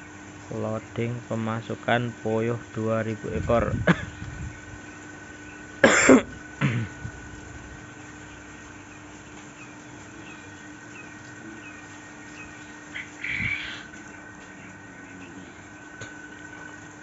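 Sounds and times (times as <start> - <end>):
steady low hum: 0.0 - 17.0
person coughing: 3.9 - 4.1, 5.8 - 7.0.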